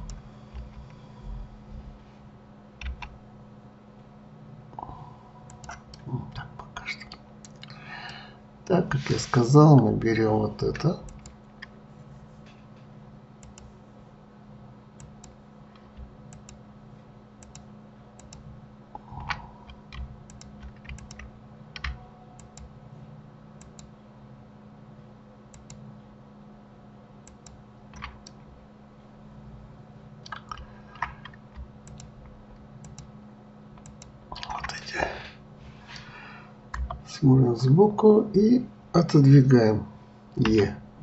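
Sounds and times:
steady low hum: 0.0s - 41.0s
computer keyboard keystrokes: 2.8s - 3.1s, 7.0s - 8.2s, 13.4s - 13.7s, 16.0s - 16.6s, 17.4s - 18.4s, 19.2s - 22.7s, 25.5s - 25.8s, 27.3s - 28.4s, 30.2s - 32.1s, 32.8s - 33.1s.

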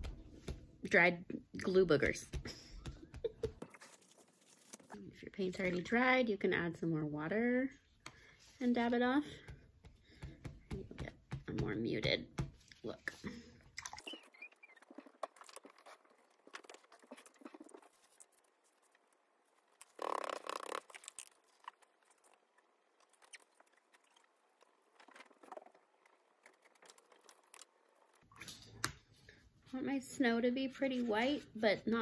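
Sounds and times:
paper towel rustling and dabbing: 2.3s - 5.0s.

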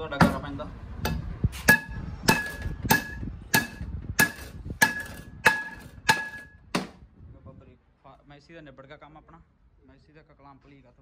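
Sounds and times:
hammer striking steel: 1.0s - 7.0s.

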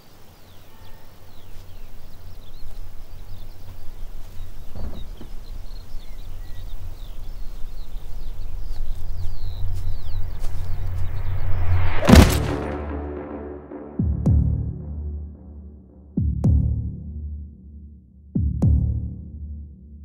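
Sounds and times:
small birds chirping: 0.0s - 12.7s
low drone: 9.4s - 17.8s.

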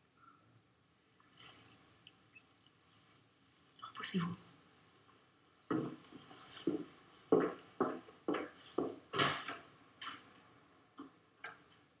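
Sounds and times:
footsteps walking: 5.7s - 9.3s.

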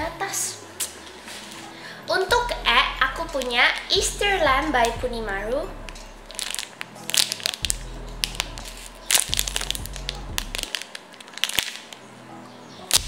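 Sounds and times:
background music: 0.0s - 13.0s
plastic bag crinkling: 5.8s - 12.0s.

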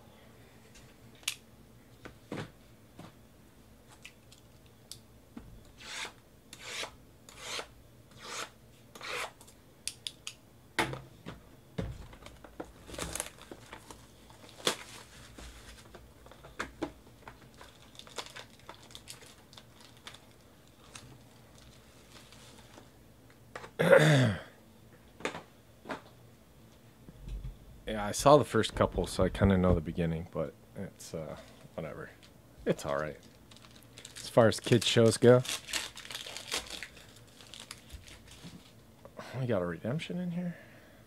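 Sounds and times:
plastic wrapping crinkling: 12.2s - 16.4s, 17.2s - 22.9s, 32.7s - 38.8s.

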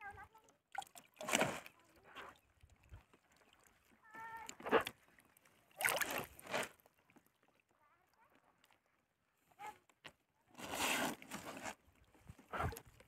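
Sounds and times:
fish rustling in a net: 0.8s - 3.7s, 5.8s - 7.0s.

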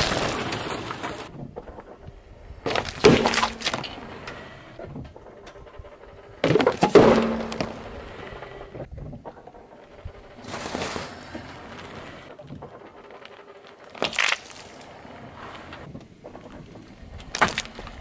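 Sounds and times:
juice cartons bursting under tyre: 0.0s - 1.3s.

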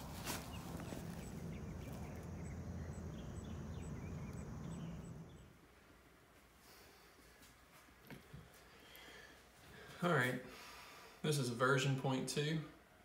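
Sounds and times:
steady low hum: 0.0s - 11.6s
faint bird chirps: 0.3s - 5.6s.

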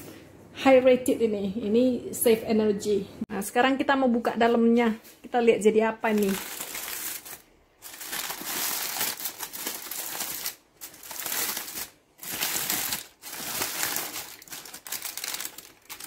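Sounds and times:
foil and paper crinkling: 6.0s - 16.0s.

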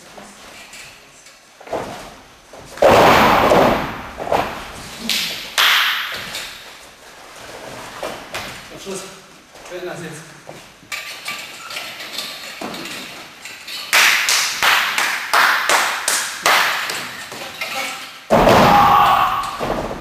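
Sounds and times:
sharp hand claps: 5.1s - 6.2s, 13.9s - 17.0s
heavy thud on ring mat: 18.3s - 20.0s.

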